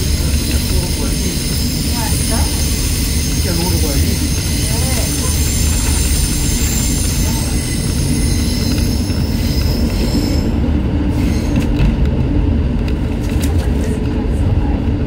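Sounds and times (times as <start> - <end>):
high-pitched wheel squeal: 0.0 - 11.7
train wheels rumbling over rails: 0.0 - 15.0.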